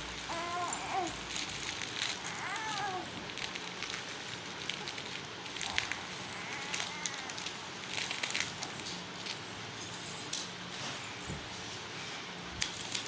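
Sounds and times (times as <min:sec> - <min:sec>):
plastic packets rustling: 0:00.0 - 0:09.5, 0:12.5 - 0:13.0
faint steady hum: 0:00.0 - 0:13.0.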